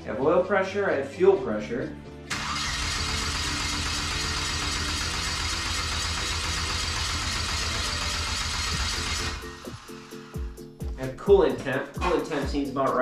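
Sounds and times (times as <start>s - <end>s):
engine cranking by starter: 2.3s - 10.5s.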